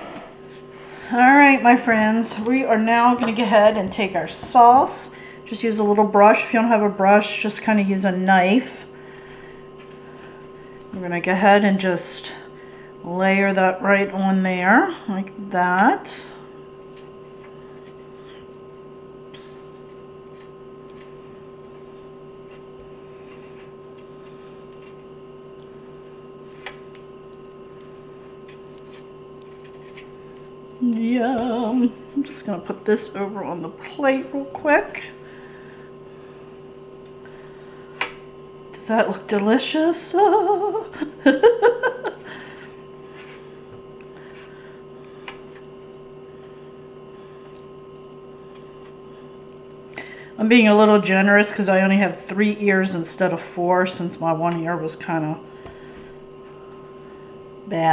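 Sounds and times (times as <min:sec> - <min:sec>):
steady hum: 0:00.0 - 0:57.9
woman speaking: 0:01.0 - 0:08.9, 0:10.9 - 0:16.4, 0:30.8 - 0:35.2, 0:38.8 - 0:42.1, 0:50.4 - 0:55.4, 0:57.6 - 0:57.9
brush squishing sauce: 0:23.4 - 0:30.8.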